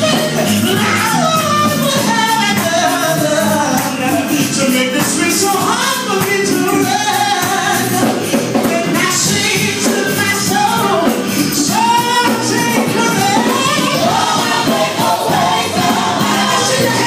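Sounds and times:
man singing into microphone: 0.0s - 13.9s
gospel music accompaniment: 0.0s - 17.0s.

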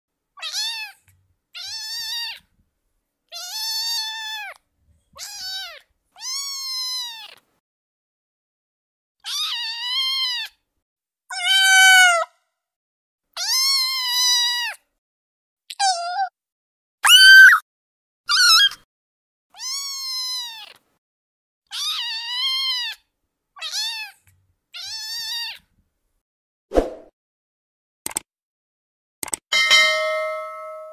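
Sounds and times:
kittens meowing: 0.4s - 1.0s, 1.6s - 2.4s, 3.4s - 4.6s, 5.2s - 7.4s, 9.2s - 10.5s, 11.3s - 12.2s, 19.6s - 20.8s, 21.7s - 23.0s, 23.6s - 24.2s, 24.8s - 25.6s.

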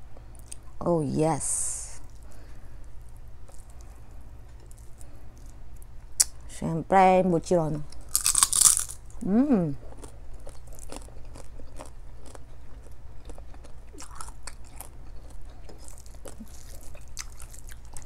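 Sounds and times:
person humming mm: 9.2s - 9.8s.

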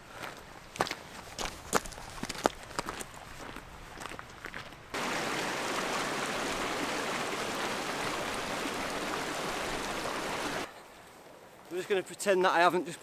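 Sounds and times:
stream rushing over stones: 4.9s - 10.7s.

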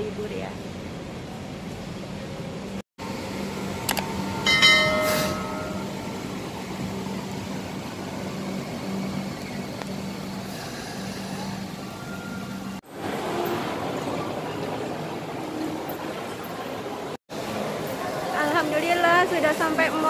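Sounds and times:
light rail train humming past: 0.0s - 20.0s
short ringing signal: 4.3s - 6.0s.

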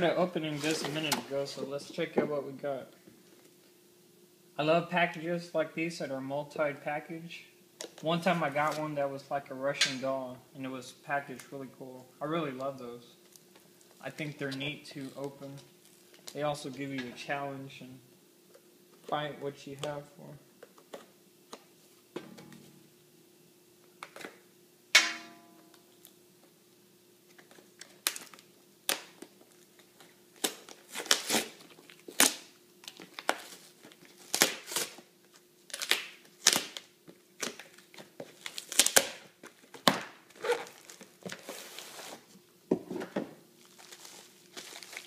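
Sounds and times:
cardboard envelope tearing: 30.3s - 35.0s, 35.7s - 37.8s, 38.4s - 42.2s.

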